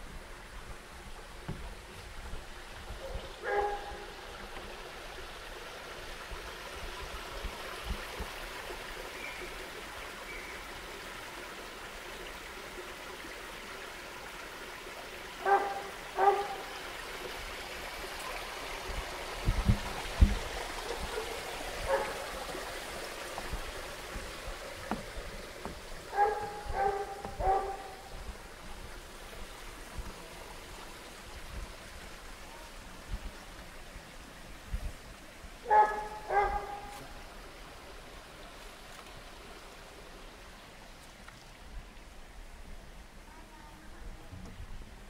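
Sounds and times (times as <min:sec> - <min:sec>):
stream rushing: 0:00.0 - 0:45.0
dog barking: 0:03.0 - 0:04.1, 0:15.4 - 0:16.7, 0:21.1 - 0:22.2, 0:26.1 - 0:28.1, 0:35.7 - 0:37.0.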